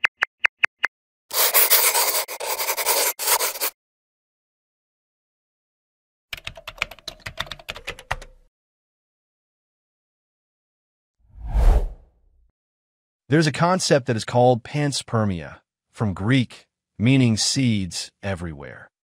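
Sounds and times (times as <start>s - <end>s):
pen scribbling on paper: 1.3s - 3.8s
keyboard typing clicks: 6.4s - 8.4s.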